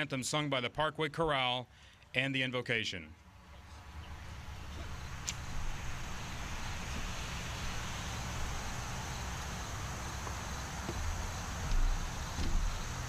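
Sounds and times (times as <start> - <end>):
steady hiss: 3.3 - 13.0
wind rumbling on microphone: 4.0 - 13.0.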